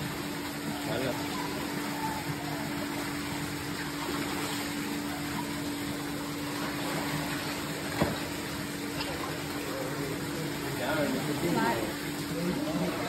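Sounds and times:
pool water splashing: 0.0 - 13.0.

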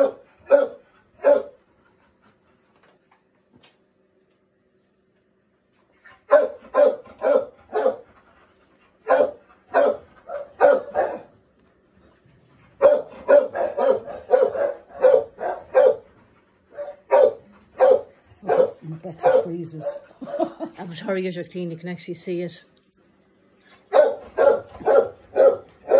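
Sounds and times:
dog barking: 0.0 - 1.6, 6.3 - 8.1, 9.0 - 11.3, 12.8 - 16.1, 16.7 - 20.5, 23.9 - 25.9.

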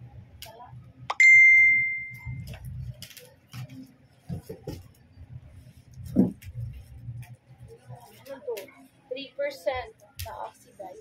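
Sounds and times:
bright bell ding: 1.1 - 2.4.

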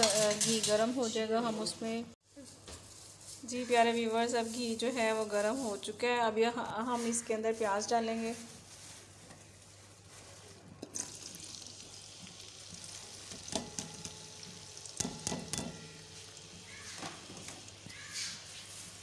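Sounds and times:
onions sizzling in a pan: 7.8 - 19.0
spoon clicking against pan: 15.0 - 16.8.

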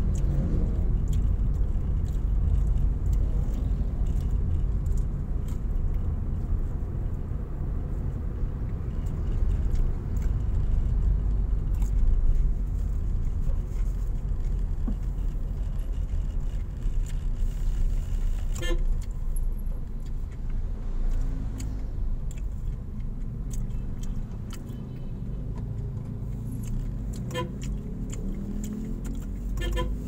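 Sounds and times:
car engine and road rumble: 0.0 - 30.0
car horn toots: 18.5 - 18.9, 27.3 - 27.6, 29.6 - 30.0.

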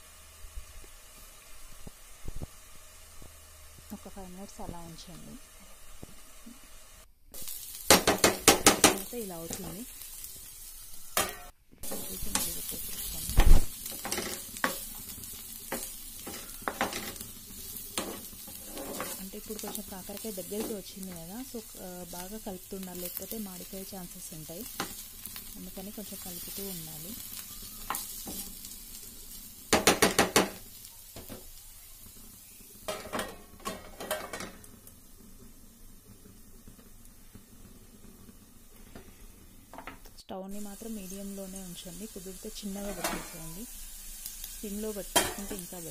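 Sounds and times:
vegetables sizzling in oil: 0.0 - 45.9
spatula scraping frying pan: 10.0 - 21.3, 27.2 - 30.6, 42.8 - 43.5.

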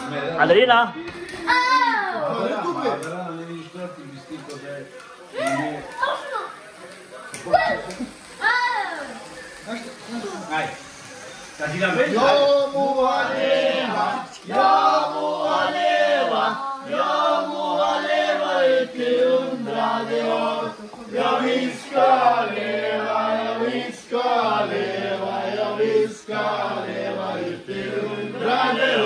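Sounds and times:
voices chanting a sung melody: 11.2 - 29.0.

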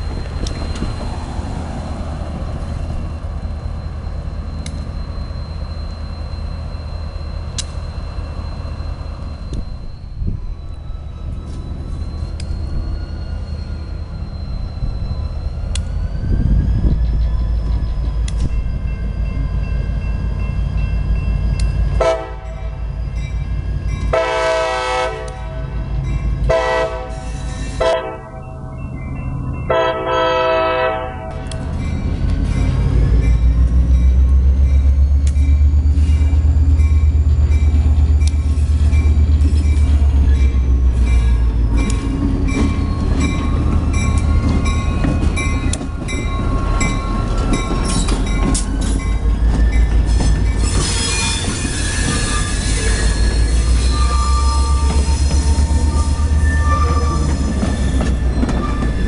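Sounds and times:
diesel locomotive engine rumble: 0.0 - 59.0
locomotive air horn blasts: 22.0 - 22.8, 24.1 - 25.8, 26.5 - 28.4, 29.7 - 31.5.

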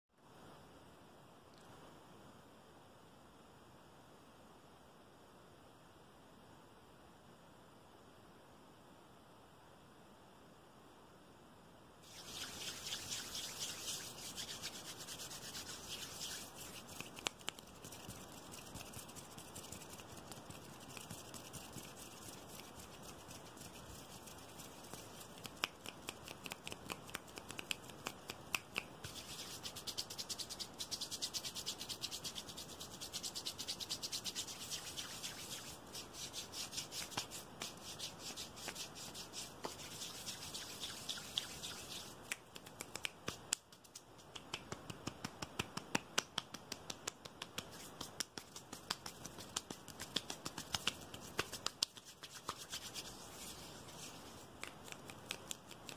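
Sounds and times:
hands rubbing together: 12.0 - 55.9
rapid finger taps and clicks: 12.1 - 55.9.

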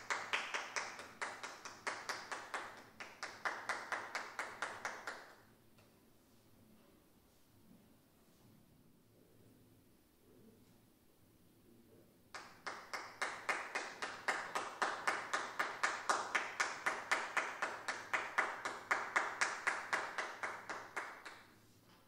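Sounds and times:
hand clapping: 0.0 - 5.4, 12.3 - 22.0.

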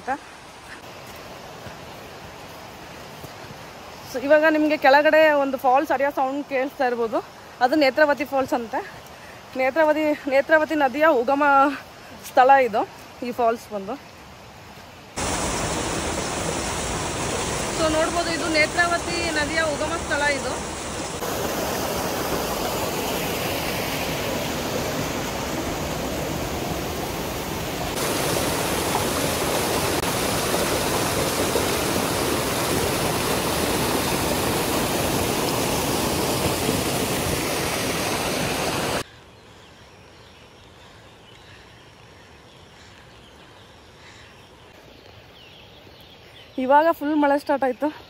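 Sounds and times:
water rushing over rocks: 15.2 - 39.0.

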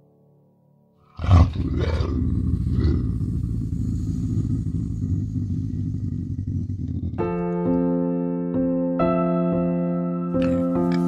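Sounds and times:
large animal roaring: 1.1 - 7.8
low rumble: 1.5 - 7.6.

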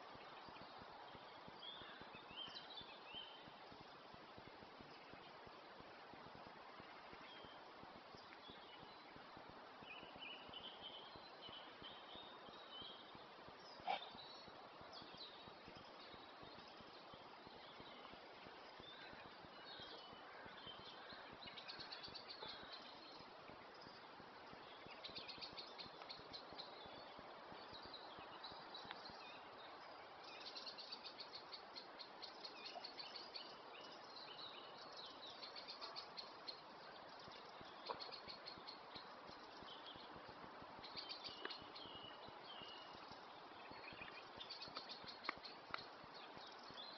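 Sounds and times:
songbirds singing: 0.0 - 46.9.

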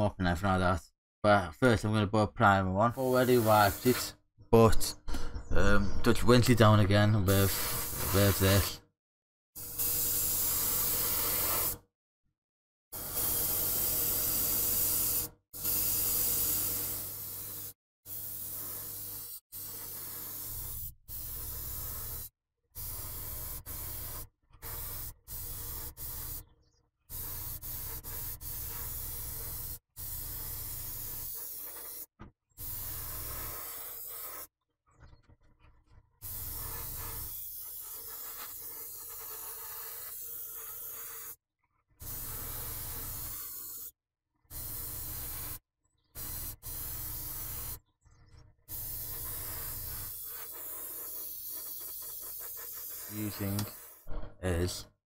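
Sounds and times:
airbrush hissing bursts: 3.0 - 4.1, 7.3 - 8.7, 9.7 - 11.8, 13.0 - 26.4, 27.1 - 34.5, 36.2 - 41.4, 42.0 - 43.9, 44.5 - 45.6, 46.2 - 47.8, 48.7 - 54.1.

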